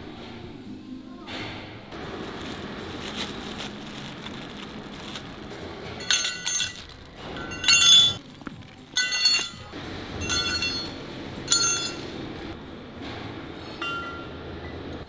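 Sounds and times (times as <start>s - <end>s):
plastic crinkling: 2.0s - 9.4s
metallic clinking: 6.0s - 8.2s, 8.9s - 12.2s.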